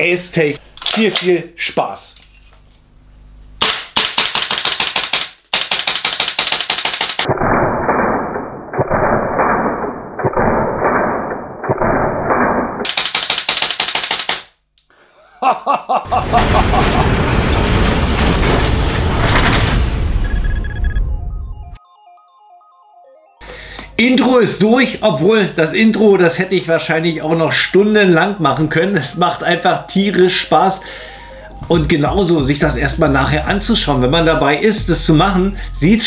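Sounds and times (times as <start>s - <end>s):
airsoft rifle automatic bursts: 3.6s - 7.3s, 12.8s - 14.5s.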